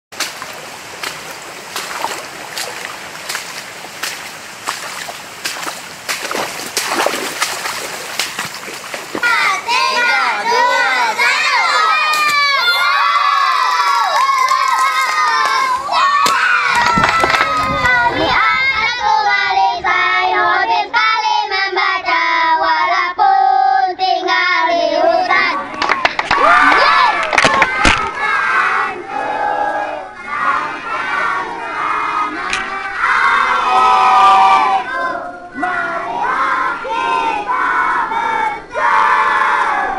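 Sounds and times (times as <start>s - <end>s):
footsteps splashing through water: 0.1s - 10.0s, 13.7s - 17.6s
running water rushing: 0.1s - 18.4s
children singing: 9.1s - 13.4s, 14.8s - 25.9s, 26.9s - 39.9s.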